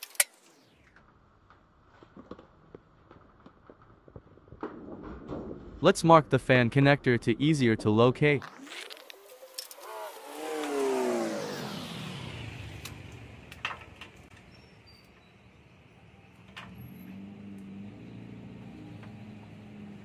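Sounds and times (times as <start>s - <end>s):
vehicle passing by: 9.3s - 14.3s, 16.6s - 20.0s.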